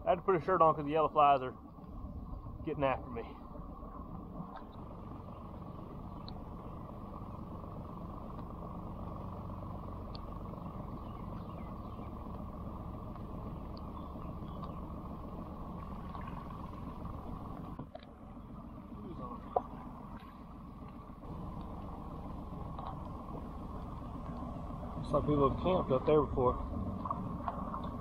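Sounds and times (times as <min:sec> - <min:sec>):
outboard motor running: 0:00.0 - 0:28.0.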